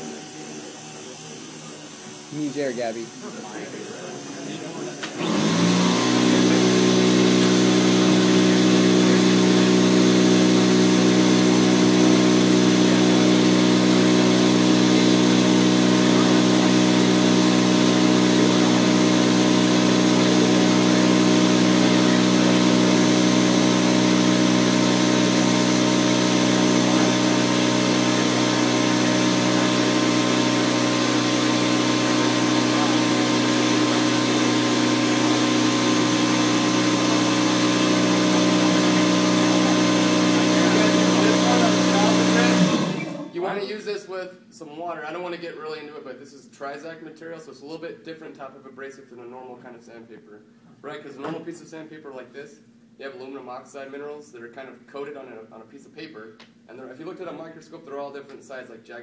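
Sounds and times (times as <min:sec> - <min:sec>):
air sander motor humming: 0:00.0 - 0:43.3.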